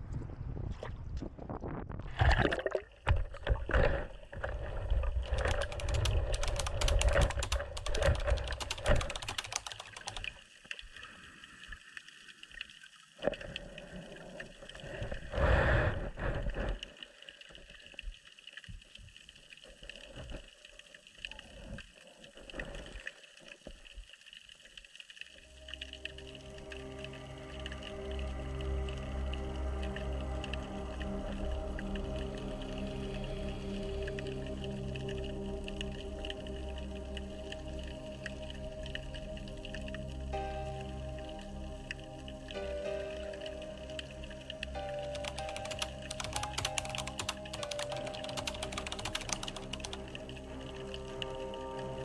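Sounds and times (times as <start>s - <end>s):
water splashing and gurgling: 0.6s - 28.9s
small clicks: 5.2s - 10.8s, 44.8s - 50.1s
faint steady underwater hum: 10.3s - 45.1s.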